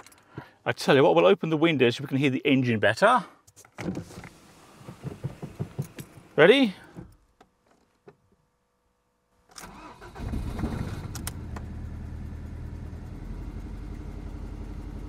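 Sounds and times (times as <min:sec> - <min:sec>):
car engine starting and idling: 0:09.5 - 0:15.0.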